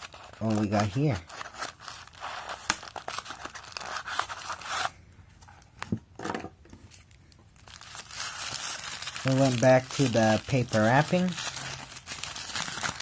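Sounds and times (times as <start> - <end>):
cardboard and paper tearing: 8.0 - 13.0.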